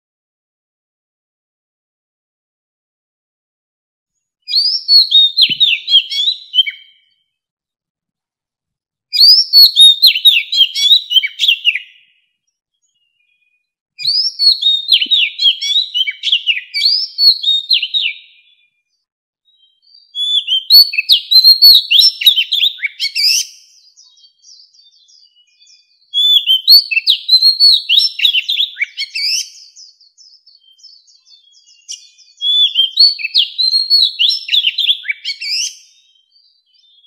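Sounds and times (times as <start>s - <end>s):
bird singing whistled notes: 4.4s - 7.4s, 9.1s - 37.0s.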